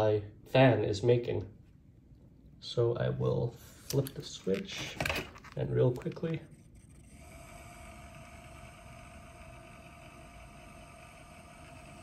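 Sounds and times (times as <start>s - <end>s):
fan whirring: 3.2s - 12.0s.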